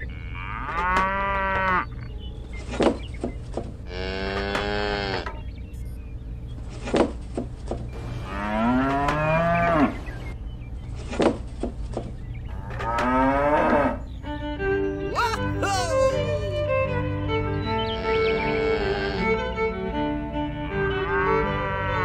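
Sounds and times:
cow mooing: 0:00.0 - 0:01.9, 0:03.9 - 0:05.3, 0:08.2 - 0:10.0, 0:12.5 - 0:14.0, 0:18.4 - 0:19.2, 0:21.1 - 0:22.0.

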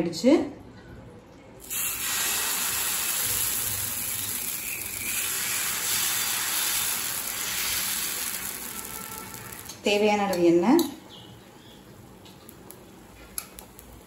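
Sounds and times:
batter sizzling on a griddle: 0:01.6 - 0:09.9.

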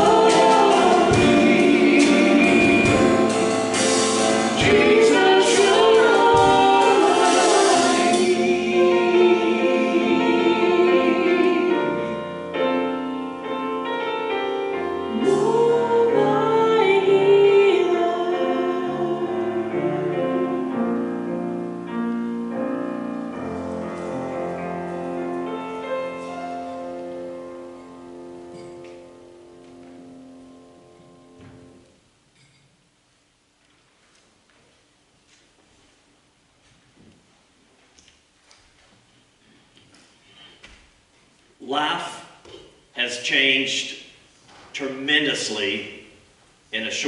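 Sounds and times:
people singing with band: 0:00.0 - 0:12.2, 0:15.1 - 0:20.0.

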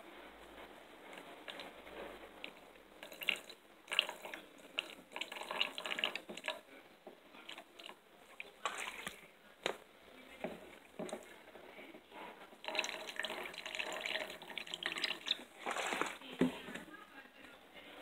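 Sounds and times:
liquid bubbling: 0:02.4 - 0:06.8, 0:12.6 - 0:16.3
liquid splashing and dripping: 0:03.0 - 0:06.6, 0:07.5 - 0:09.2, 0:12.6 - 0:16.3.

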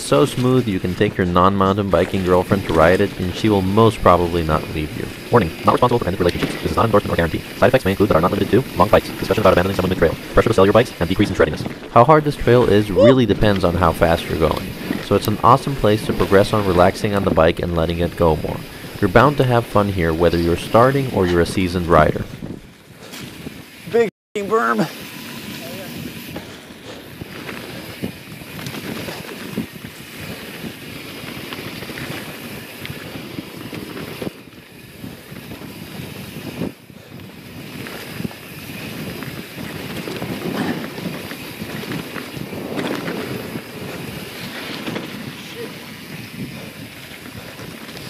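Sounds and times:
tyres humming on dirt: 0:00.0 - 0:22.1
bike clicks and rattles: 0:00.0 - 0:24.0, 0:24.9 - 0:48.0
wind on microphone: 0:20.0 - 0:23.9, 0:25.7 - 0:48.0.

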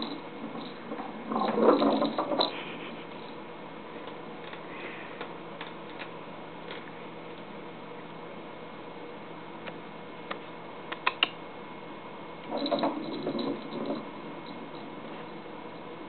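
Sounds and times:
toy rattling and rolling: 0:00.0 - 0:03.4, 0:12.5 - 0:14.9.

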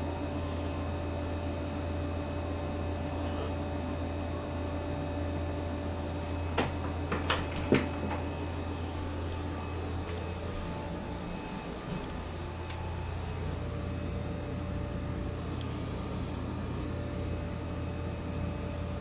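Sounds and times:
low electrical hum: 0:00.0 - 0:19.0
sharp clicks and knocks: 0:06.6 - 0:08.4.

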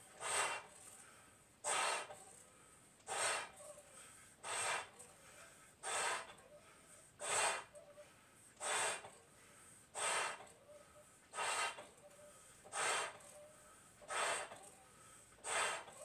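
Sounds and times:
person blowing up balloons: 0:00.1 - 0:00.8, 0:01.6 - 0:02.1, 0:03.1 - 0:03.5, 0:04.4 - 0:04.9, 0:05.8 - 0:06.3, 0:07.2 - 0:07.7, 0:08.6 - 0:09.1, 0:10.0 - 0:10.4, 0:11.3 - 0:11.9, 0:12.7 - 0:13.2, 0:14.1 - 0:14.6, 0:15.4 - 0:16.0.

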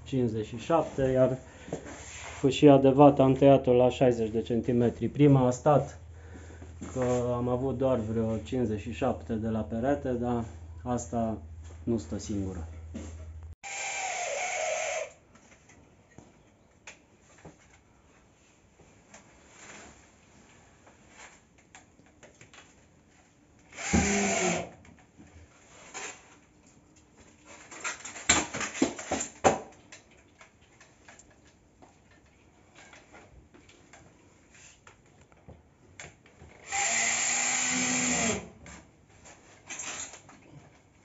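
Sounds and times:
power drill driving screws: 0:13.6 - 0:15.2, 0:23.7 - 0:24.7, 0:36.6 - 0:38.5.

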